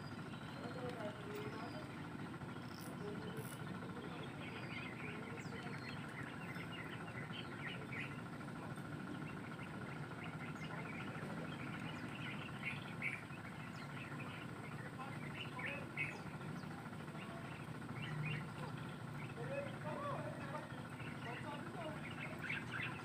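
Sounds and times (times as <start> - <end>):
small birds chirping: 0.0 - 23.0
insect trill: 2.6 - 3.7.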